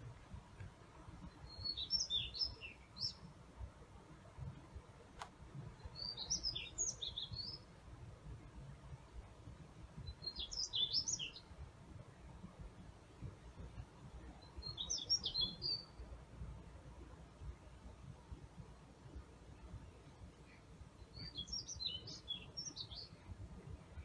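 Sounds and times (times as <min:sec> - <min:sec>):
songbird twittering: 0:01.3 - 0:03.3, 0:05.8 - 0:07.7, 0:10.1 - 0:11.5, 0:14.4 - 0:16.0, 0:20.5 - 0:23.3.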